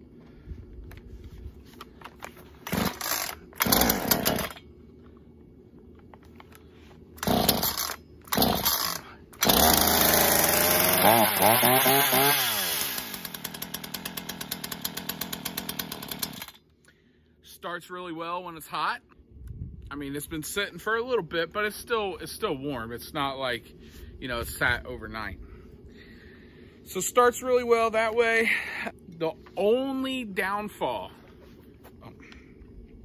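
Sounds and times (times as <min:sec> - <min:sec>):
chainsaw engine running: 0:02.6 - 0:04.6, 0:07.2 - 0:16.6
chainsaw starter cord pulls: 0:02.6 - 0:04.6, 0:07.2 - 0:16.6.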